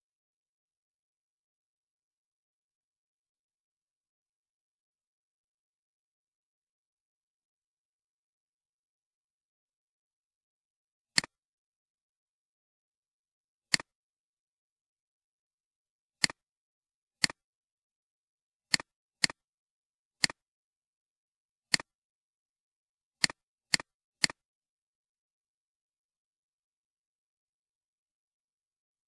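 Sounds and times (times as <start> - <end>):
computer mouse clicks: 20.2 - 20.4, 23.2 - 24.4.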